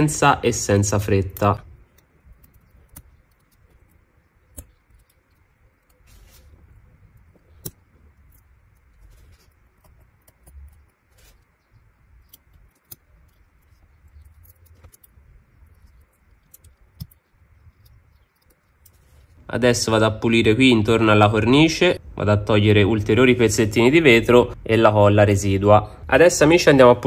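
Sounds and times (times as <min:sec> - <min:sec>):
low steady hum: 0:00.0 - 0:27.0
tweezers clicking and scraping: 0:01.3 - 0:19.4.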